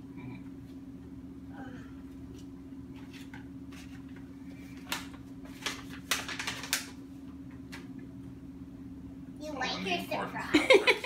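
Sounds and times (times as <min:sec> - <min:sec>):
paper rustling and crinkling: 0:02.9 - 0:07.0
sharp paper crackles: 0:03.0 - 0:07.0.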